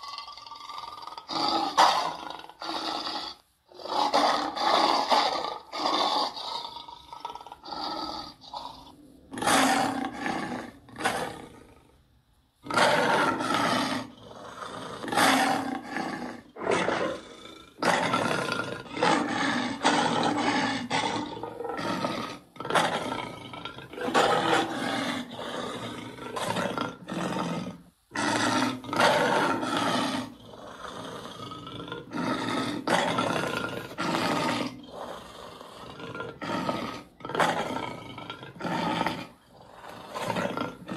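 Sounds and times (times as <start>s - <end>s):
creature roars and growls: 12.7s - 40.9s.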